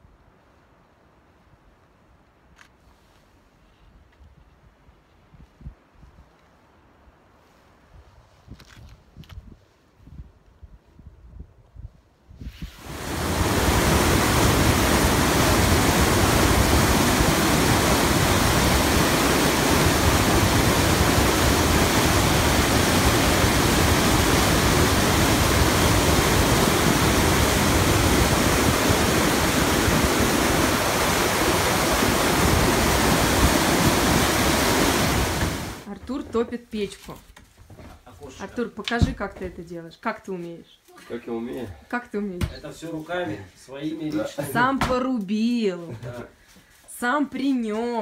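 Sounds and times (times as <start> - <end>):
river rushing through rapids: 12.8 - 35.9.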